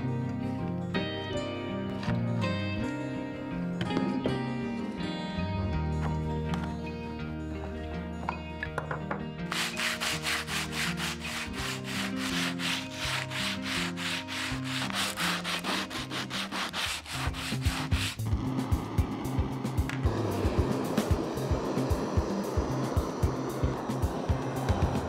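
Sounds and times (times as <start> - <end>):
hand sanding wood: 9.5 - 18.4.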